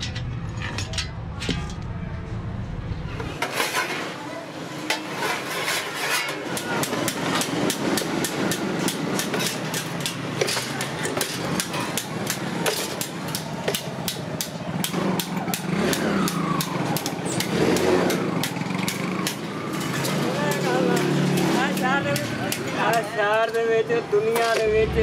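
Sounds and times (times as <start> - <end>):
bench shear cutting steel sheet: 3.3 - 4.2, 4.8 - 23.2
engine hum: 24.6 - 25.0.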